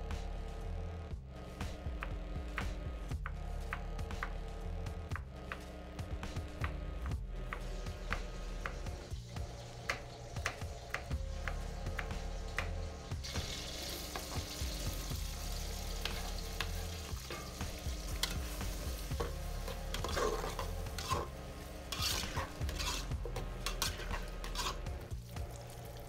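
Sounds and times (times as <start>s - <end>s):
onions frying in hot oil: 7.6s - 26.0s
spatula scraping a pot: 17.2s - 25.1s.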